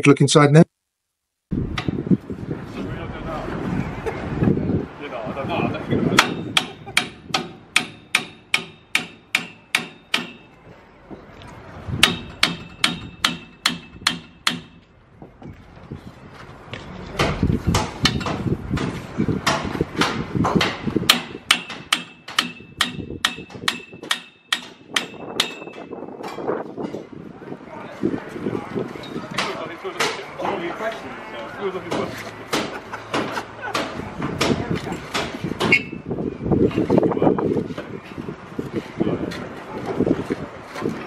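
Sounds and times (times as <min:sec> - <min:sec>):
hammer blows: 0:06.1 - 0:10.5, 0:12.0 - 0:14.9, 0:17.2 - 0:27.0.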